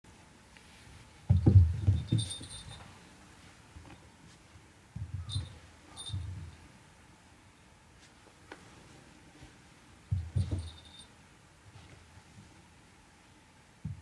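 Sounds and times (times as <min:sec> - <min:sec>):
toy ball tinkling: 0:01.9 - 0:02.8, 0:05.3 - 0:06.3.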